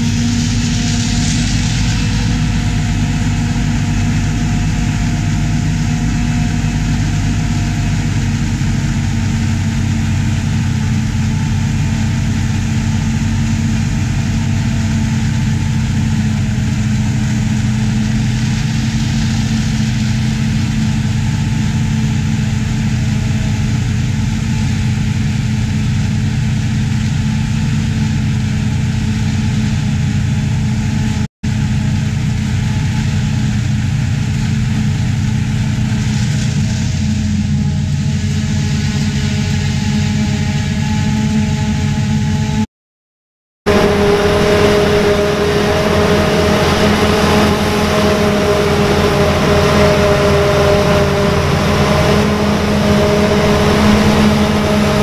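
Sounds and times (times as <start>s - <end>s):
heavy diesel machinery running: 0.0s - 42.7s, 43.7s - 55.0s.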